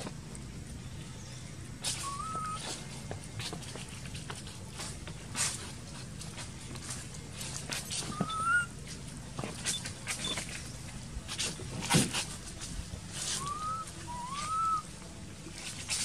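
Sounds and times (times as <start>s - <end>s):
clicks and rustles: 1.6s - 14.6s
infant monkey whimpering coos: 2.0s - 2.8s, 8.1s - 8.8s, 13.4s - 14.8s.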